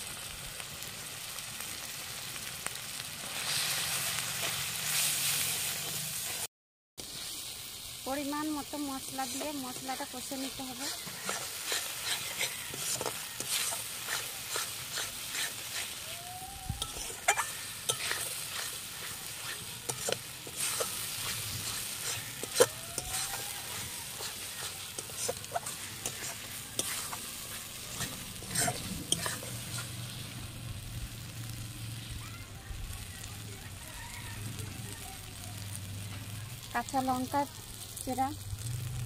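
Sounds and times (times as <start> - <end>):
oil sizzling: 0.0 - 39.0
metal spatula scraping pan: 8.8 - 16.1, 16.8 - 30.2.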